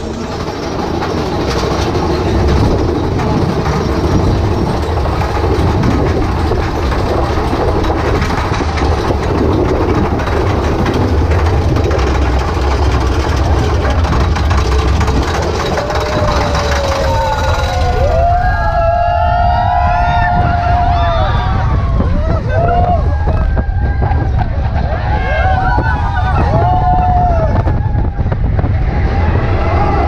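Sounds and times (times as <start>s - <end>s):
roller coaster rumbling on track: 0.0s - 30.0s
riders shouting: 15.3s - 28.2s.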